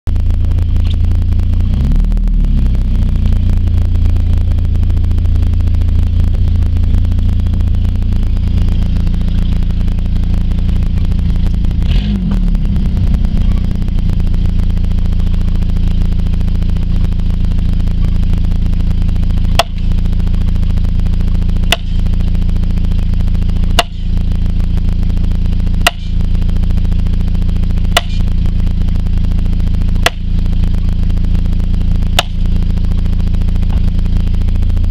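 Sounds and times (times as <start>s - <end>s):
vehicle engine running: 0.0s - 34.9s
wooden post pounded: 21.7s - 22.0s, 23.8s - 24.0s, 25.8s - 26.1s, 28.0s - 28.2s, 30.0s - 30.2s, 32.2s - 32.4s.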